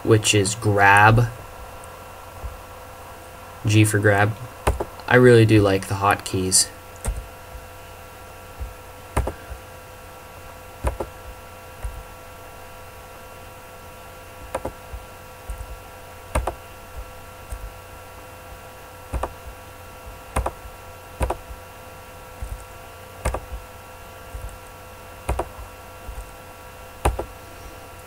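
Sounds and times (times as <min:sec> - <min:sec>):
steady hum of fixed tones: 0:00.0 - 0:28.0
keyboard and mouse clicks: 0:09.2 - 0:09.4, 0:14.5 - 0:14.8, 0:16.4 - 0:16.6, 0:19.1 - 0:19.5, 0:20.4 - 0:21.6, 0:23.2 - 0:23.6, 0:25.3 - 0:26.3, 0:27.0 - 0:27.3.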